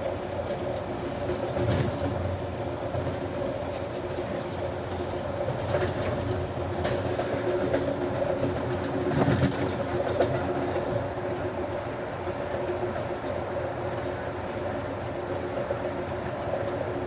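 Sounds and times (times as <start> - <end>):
train rumble and hum: 0.0 - 17.0
wheels clacking over rail joints: 2.9 - 11.5.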